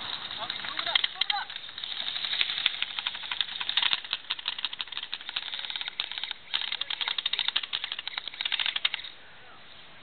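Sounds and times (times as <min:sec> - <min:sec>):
airsoft guns firing rapid bursts: 0:00.0 - 0:09.1.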